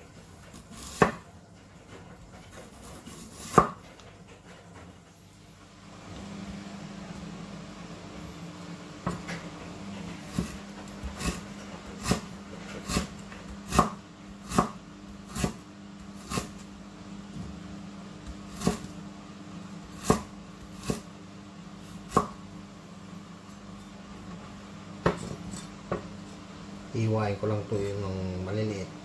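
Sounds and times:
steady low hum: 0.0 - 29.0
knife chopping on cutting board: 0.5 - 1.3, 2.5 - 4.0, 10.2 - 16.6, 18.2 - 18.9, 19.9 - 21.1, 22.0 - 22.4, 25.0 - 26.1.

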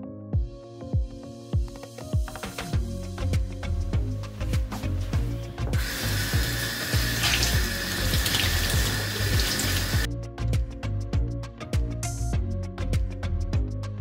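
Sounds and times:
background music with beat: 0.0 - 14.0
tap water running onto sponge: 5.6 - 10.1.

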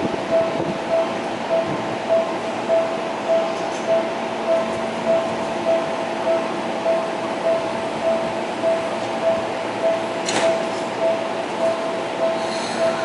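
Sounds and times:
railway warning signal beeping: 0.0 - 13.0
station background noise: 0.0 - 13.0.

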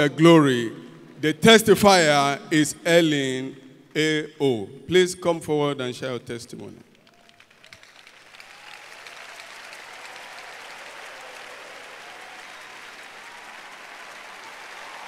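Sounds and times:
crowd applauding: 6.9 - 15.0.

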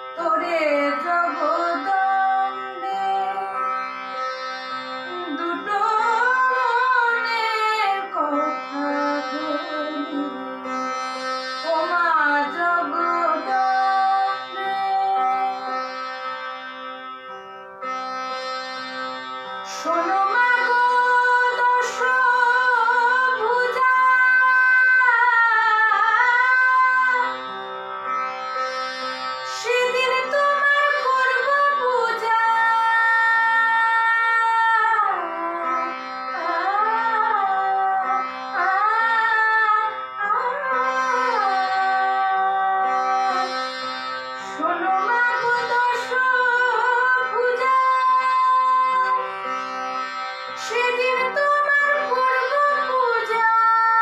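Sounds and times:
tanpura drone: 0.0 - 54.0
woman singing slow melody: 0.2 - 3.6, 11.7 - 15.7, 19.8 - 27.3, 44.6 - 49.2.

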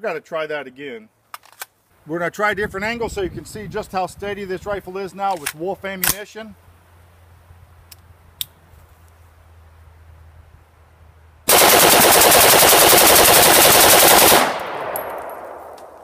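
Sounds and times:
rifle firing full auto: 11.5 - 16.0
gunshot echo: 14.3 - 16.0.

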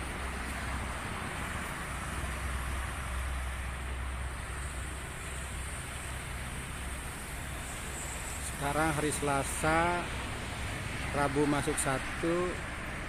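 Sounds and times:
distant road traffic drone: 0.0 - 13.0.

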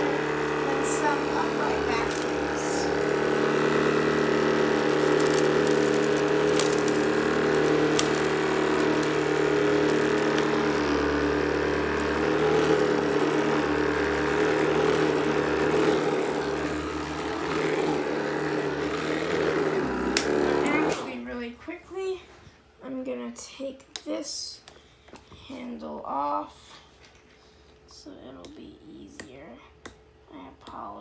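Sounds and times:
cordless sweeper motor hum: 0.0 - 21.4.

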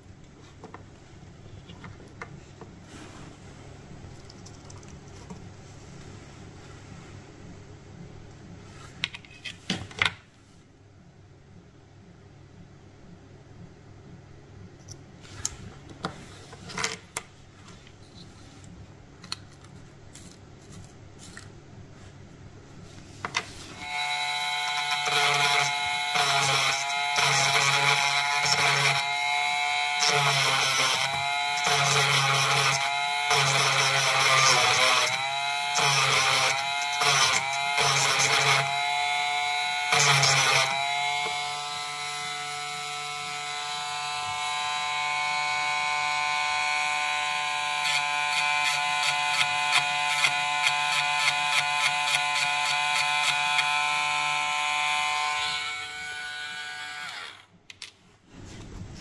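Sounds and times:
angle grinder whining: 23.8 - 57.6.

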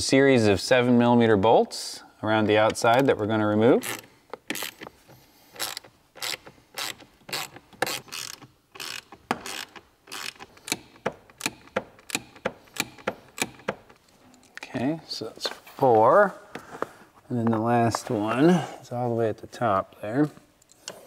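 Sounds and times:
socket ratchet clicking: 3.8 - 4.9, 5.5 - 14.0.

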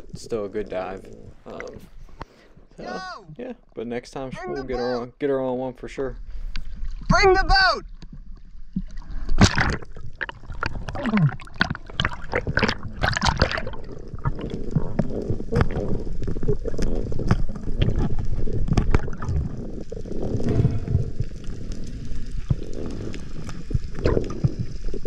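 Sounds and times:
water sloshing and gurgling: 6.2 - 7.3, 7.9 - 25.0
sharp underwater clicks: 8.8 - 25.0.

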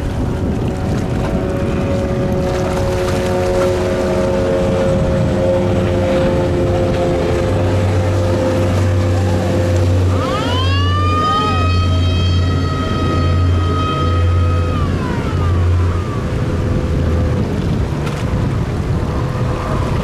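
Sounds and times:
boat engine drone: 0.0 - 20.0
water rushing from hull: 0.0 - 20.0
siren wailing: 2.1 - 17.3.

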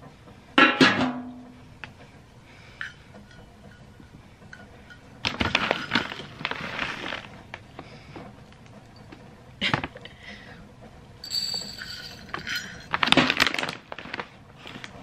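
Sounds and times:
metal canister lid clanking: 0.6 - 1.4
dry pellets rattling into bowl: 11.2 - 14.2.

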